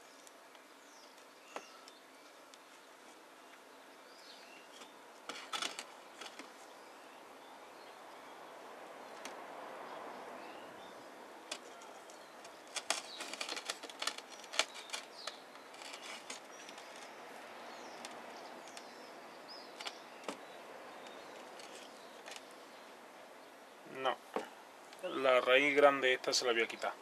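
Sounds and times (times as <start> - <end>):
roots crackling and rustling: 8.0 - 22.8.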